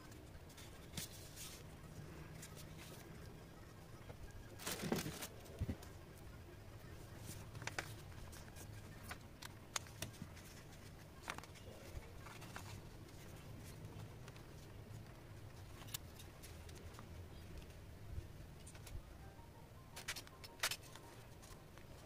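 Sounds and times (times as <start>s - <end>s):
low steady hum: 0.0s - 22.0s
hands handling paper and tools: 4.6s - 5.9s, 7.1s - 17.7s.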